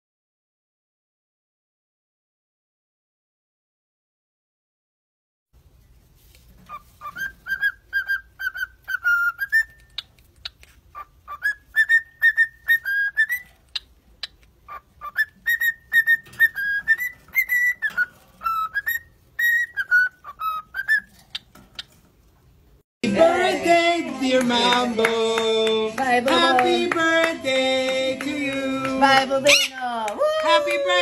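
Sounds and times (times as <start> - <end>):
cockatiel whistling: 6.7 - 21.9.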